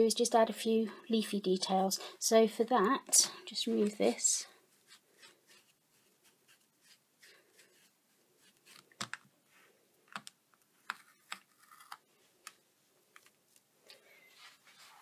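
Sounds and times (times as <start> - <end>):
cloth rubbing on plastic: 14.4 - 15.0.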